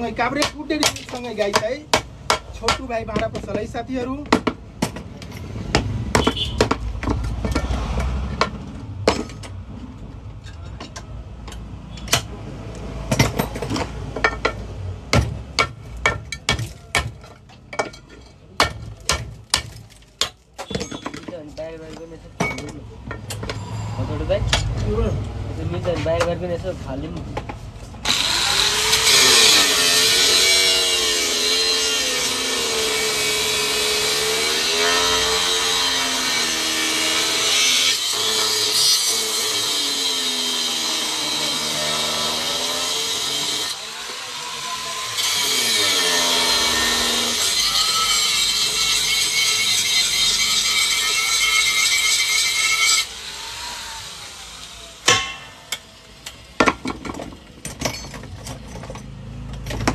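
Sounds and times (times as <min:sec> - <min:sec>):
angle grinder grinding metal: 0:28.0 - 0:56.4.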